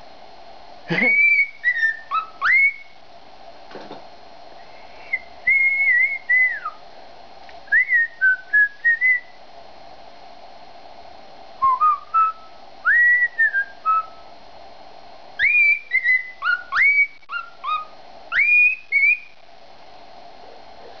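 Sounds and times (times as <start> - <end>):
cockatiel whistling: 1.0 - 3.0, 4.9 - 6.8, 7.7 - 9.4, 11.6 - 14.2, 15.4 - 19.4.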